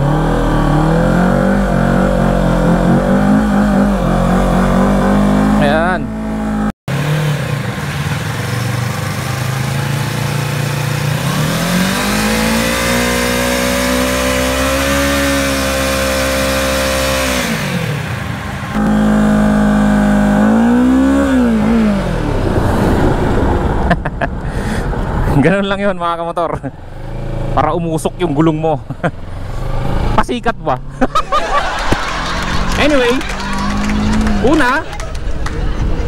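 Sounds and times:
motorcycle engine revving: 0.0 - 23.7, 31.8 - 34.9.

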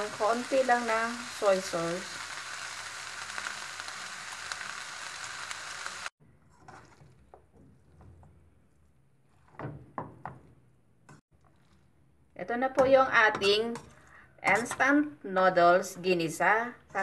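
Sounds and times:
stir-fry sizzling in pan: 0.0 - 8.1.

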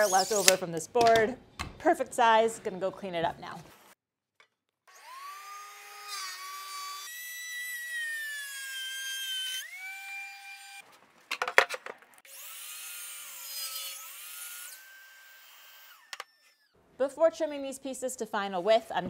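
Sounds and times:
miter saw cutting board: 4.9 - 10.8, 12.3 - 16.7.

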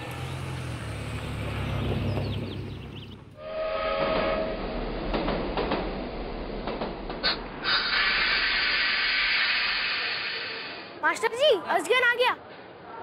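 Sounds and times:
rush of train wheels on rails: 0.0 - 11.0
train horn: 3.4 - 4.7
wheels clicking over rail joints: 5.0 - 7.7.

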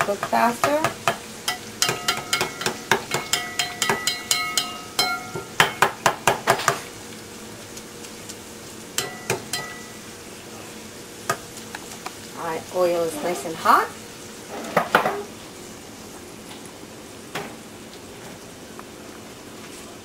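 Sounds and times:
food sizzling in hot oil: 0.0 - 20.0
metal spoon clinking against pot: 1.5 - 5.8, 9.0 - 9.9.

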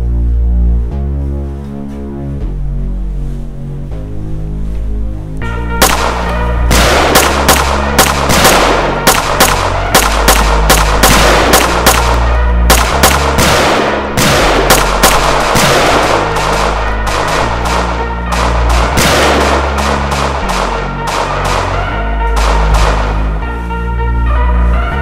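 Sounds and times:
film score with low bass notes: 0.0 - 25.0
gunshots: 5.8 - 23.4.

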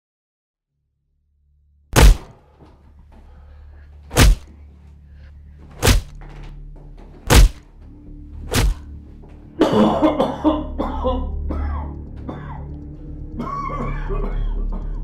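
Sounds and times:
heavy blows thudding: 2.0 - 2.4, 4.1 - 4.5, 5.8 - 6.2, 7.2 - 7.7, 8.5 - 8.9.

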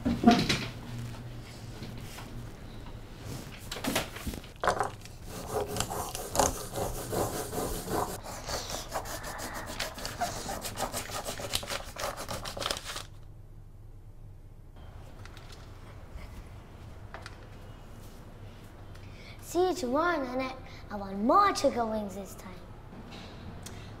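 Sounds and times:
pencil scribbling on paper: 5.2 - 12.6.

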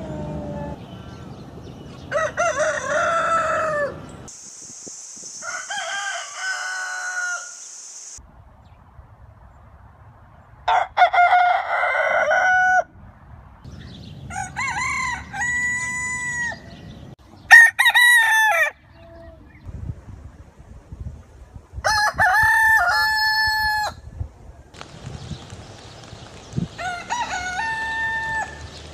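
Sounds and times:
roosters crowing: 2.0 - 4.3, 5.4 - 7.6, 10.7 - 12.9, 14.2 - 16.9, 17.5 - 18.9, 21.9 - 24.0, 26.7 - 28.9
hiss: 4.3 - 8.2.

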